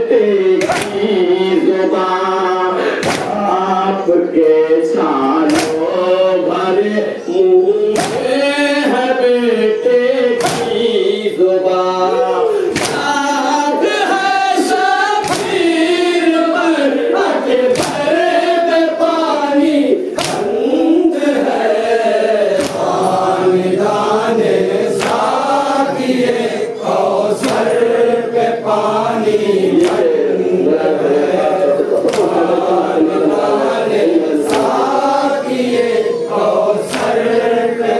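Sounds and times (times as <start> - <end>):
group of voices chanting: 0.0 - 37.9
sharp slap: 0.6 - 1.1, 3.0 - 3.4, 5.5 - 6.0, 7.9 - 8.5, 10.4 - 11.0, 12.7 - 13.2, 15.2 - 15.8, 17.7 - 18.1, 20.2 - 20.5, 22.5 - 23.0, 24.9 - 25.4, 27.4 - 27.7, 29.8 - 30.1, 32.0 - 32.5, 34.4 - 34.9, 36.8 - 37.2.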